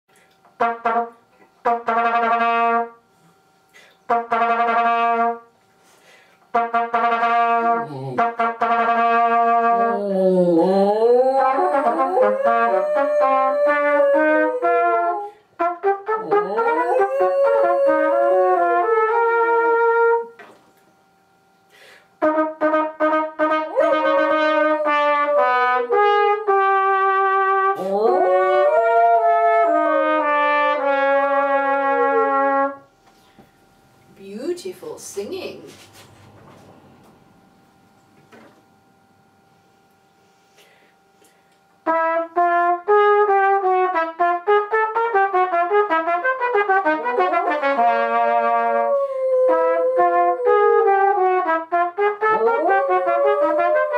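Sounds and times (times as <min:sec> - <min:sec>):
trumpet playing long notes: 0:00.6 - 0:03.0, 0:04.1 - 0:05.5, 0:06.5 - 0:20.4, 0:22.2 - 0:32.9, 0:41.8 - 0:53.9
small dog howling: 0:09.8 - 0:15.3, 0:16.2 - 0:19.2, 0:23.7 - 0:26.5, 0:27.7 - 0:31.0, 0:48.4 - 0:51.0, 0:52.3 - 0:53.9.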